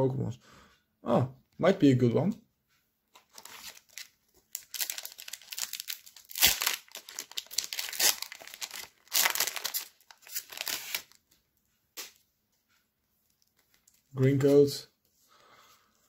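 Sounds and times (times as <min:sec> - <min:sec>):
foil wrapper tearing and crinkling: 0:03.3 - 0:11.2.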